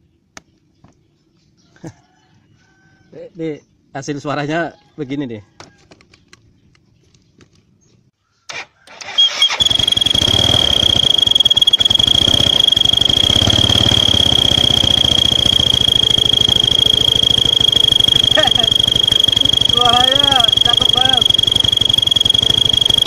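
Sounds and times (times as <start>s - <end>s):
toy trumpet high-pitched toot: 9.0s - 23.0s
motor scooter engine idling: 9.6s - 23.0s.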